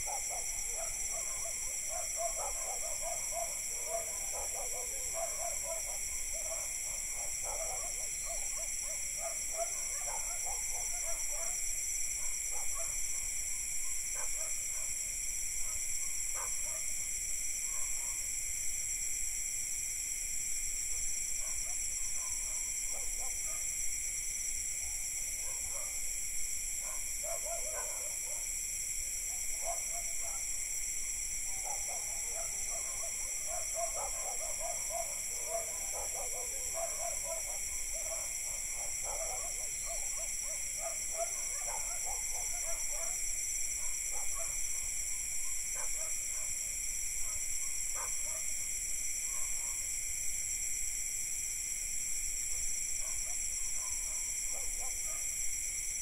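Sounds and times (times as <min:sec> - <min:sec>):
crickets and cicadas droning: 0:00.0 - 0:56.0
distant dogs barking: 0:00.1 - 0:11.6, 0:25.4 - 0:26.0, 0:26.8 - 0:28.5, 0:29.5 - 0:30.5, 0:31.5 - 0:43.2, 0:43.8 - 0:44.8, 0:45.4 - 0:46.6, 0:47.2 - 0:48.5, 0:49.3 - 0:49.9, 0:53.0 - 0:55.3.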